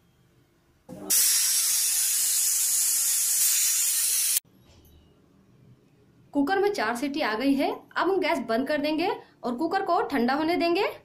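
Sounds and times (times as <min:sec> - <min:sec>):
pressure cooker steam hissing: 0:01.1 - 0:04.4.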